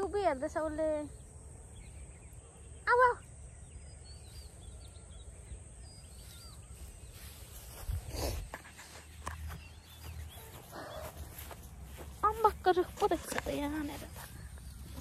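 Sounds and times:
faint bird chirps: 0:00.0 - 0:15.0.

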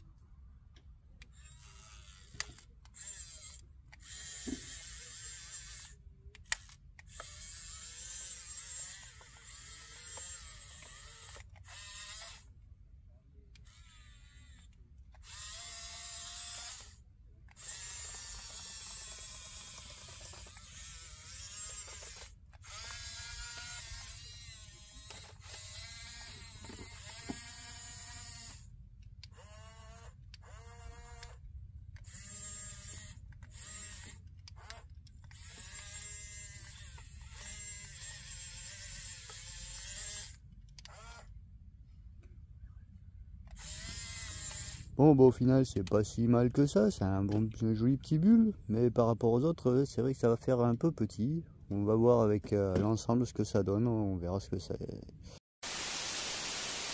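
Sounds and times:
toy bulldozer motors whining: 0:01.2 - 0:12.6, 0:13.5 - 0:41.4, 0:43.4 - 0:47.4.

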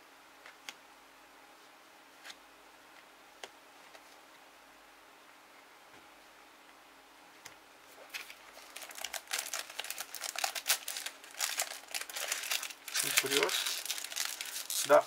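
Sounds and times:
foil wrapper crinkling: 0:08.1 - 0:15.0.

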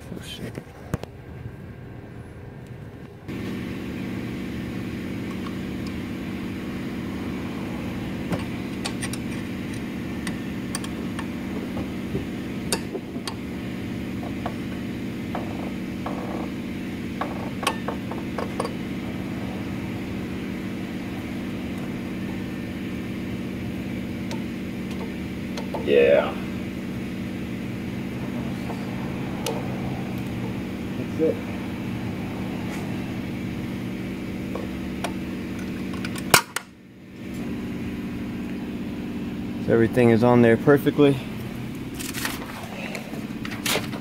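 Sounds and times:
steady background hum: 0:00.0 - 0:44.0.

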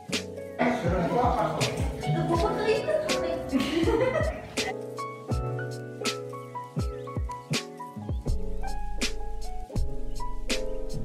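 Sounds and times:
steady drum beat: 0:00.6 - 0:04.7
sustained melodic notes: 0:00.6 - 0:05.2.

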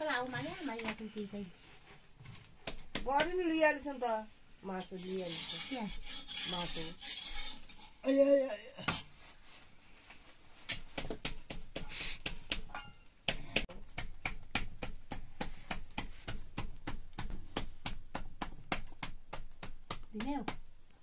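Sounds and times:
dough slapped by hand on wood: 0:10.9 - 0:12.7, 0:13.3 - 0:20.7.

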